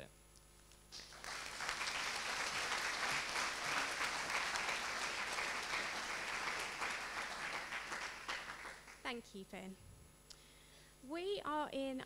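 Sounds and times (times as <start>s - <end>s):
audience applauding: 0.9s - 9.1s.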